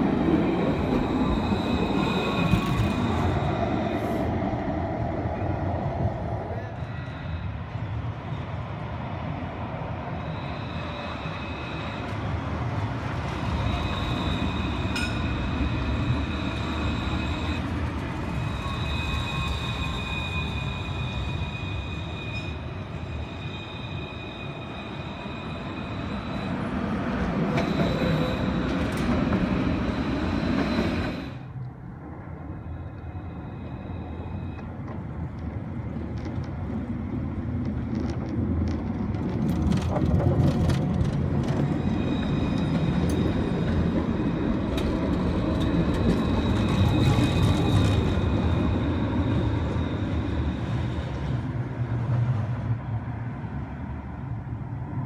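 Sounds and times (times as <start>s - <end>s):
tram wheels rumbling on rail: 0.0s - 55.0s
high-pitched wheel squeal: 0.7s - 3.8s, 10.1s - 12.2s, 13.4s - 26.9s, 27.5s - 28.9s, 32.7s - 34.8s, 41.5s - 51.0s.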